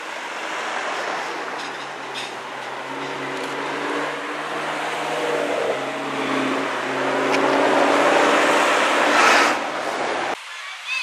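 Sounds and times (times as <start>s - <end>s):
sports car accelerating past: 2.4s - 9.8s.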